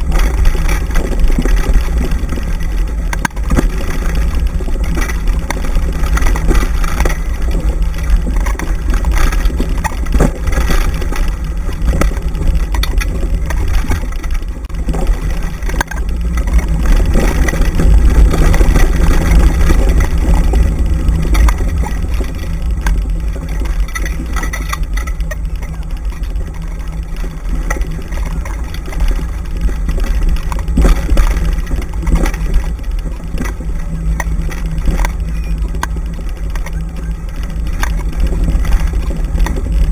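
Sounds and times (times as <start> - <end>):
rig rattling and knocking: 0.0 - 39.9
wheels running on dirt trail: 0.0 - 39.9
wind buffeting microphone: 0.0 - 39.9.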